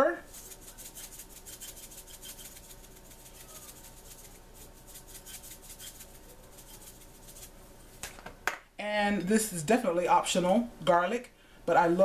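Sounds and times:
pepper grinder crunching: 0:00.3 - 0:07.5.

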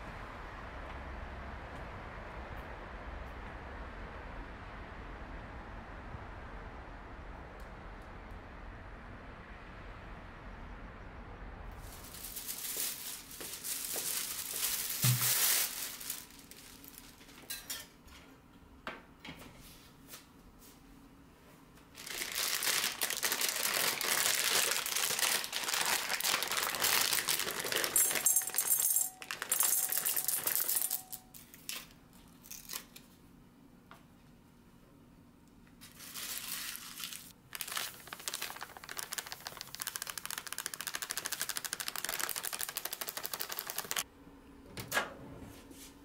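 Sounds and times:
plastic bag crinkling: 0:11.8 - 0:17.4, 0:22.0 - 0:33.0, 0:35.8 - 0:44.0.

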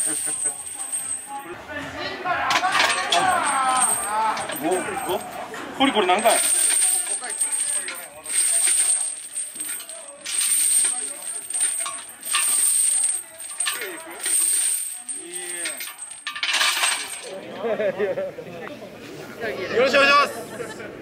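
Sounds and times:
steel chains clinking: 0:00.0 - 0:01.4, 0:02.5 - 0:17.4.

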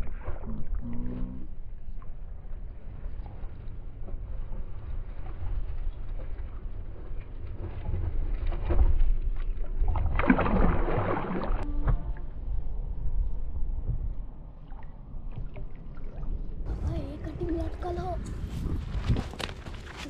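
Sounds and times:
low rumble: 0:00.0 - 0:20.0
fish splashing in water: 0:08.6 - 0:11.6.

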